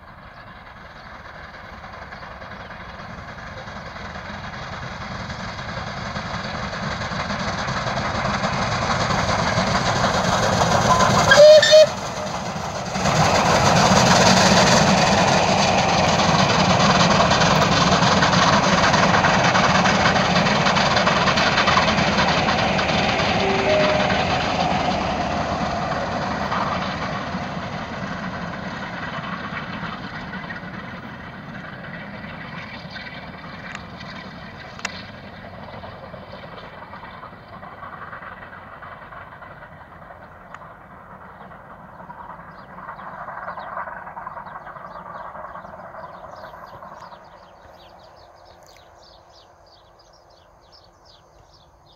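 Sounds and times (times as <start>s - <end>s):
steam locomotive hauling train: 0.0s - 51.9s
birds chirping: 39.7s - 51.9s.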